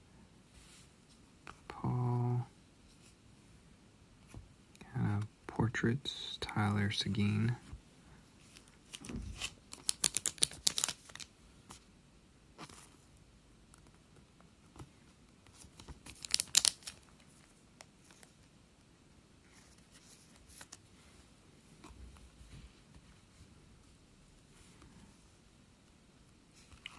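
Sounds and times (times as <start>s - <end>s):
cards rustling and clicking: 8.4s - 11.8s, 14.8s - 18.5s, 19.5s - 20.8s.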